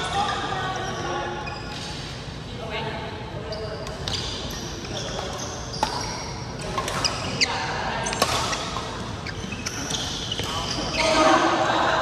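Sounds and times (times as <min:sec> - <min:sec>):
shoes squeaking on floor: 0:00.6 - 0:02.0, 0:03.4 - 0:11.3
rackets hitting shuttlecocks: 0:08.1 - 0:08.6.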